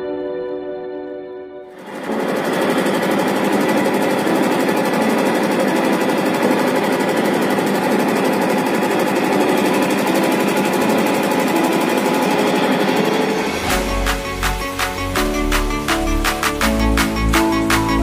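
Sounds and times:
washing machine rattling: 0:01.8 - 0:15.6.

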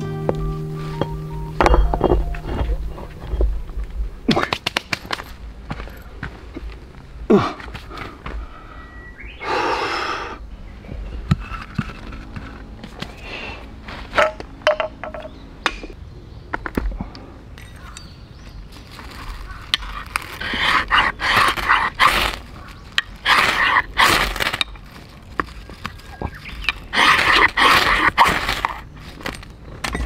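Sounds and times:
fire-starter rod scraping: 0:19.4 - 0:30.0.

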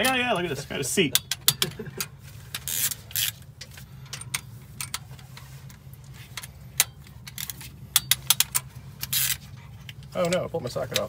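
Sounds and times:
ratchet wrench clicking: 0:01.1 - 0:05.0, 0:06.3 - 0:09.4.

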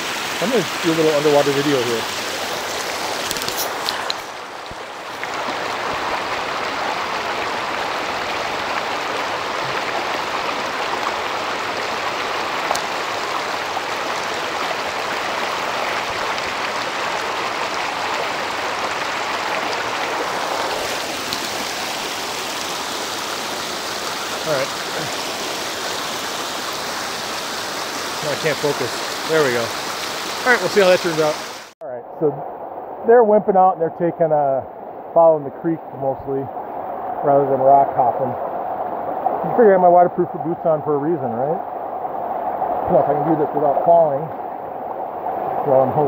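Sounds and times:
stream flowing in open air: 0:00.0 - 0:46.0
water rushing underwater: 0:00.0 - 0:46.0.

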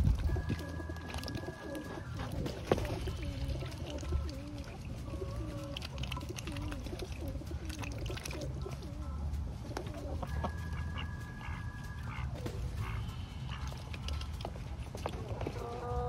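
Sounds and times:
poultry warbling calls: 0:00.0 - 0:16.0
poultry high steady call: 0:10.0 - 0:14.8.

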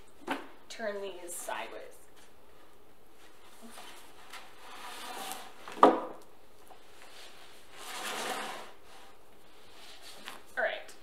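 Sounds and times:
books sliding: 0:03.6 - 0:05.8, 0:07.0 - 0:10.4.

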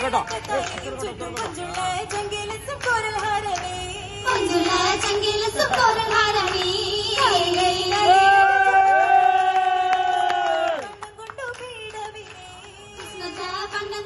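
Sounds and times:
hand claps: 0:00.0 - 0:03.8, 0:04.4 - 0:13.6
women singing together: 0:00.4 - 0:08.2, 0:10.7 - 0:14.0.

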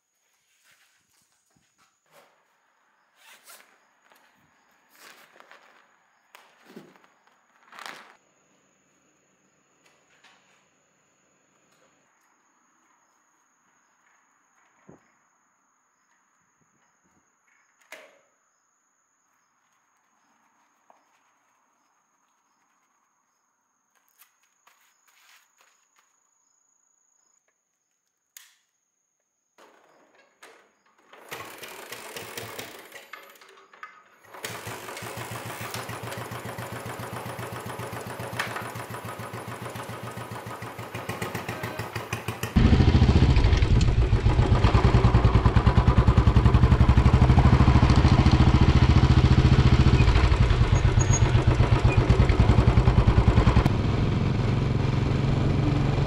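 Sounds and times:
motorcycle engine running: 0:34.5 - 0:56.0.

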